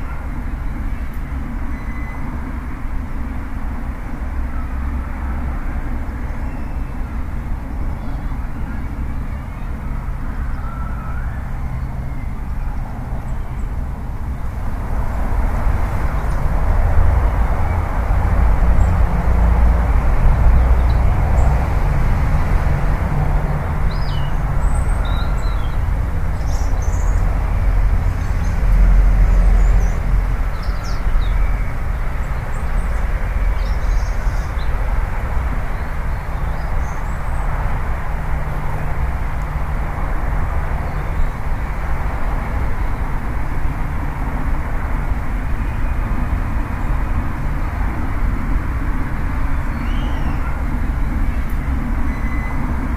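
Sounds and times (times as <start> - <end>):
outdoor low rumble: 0.0 - 52.9
faint bird chirps: 1.7 - 2.4, 49.7 - 52.7.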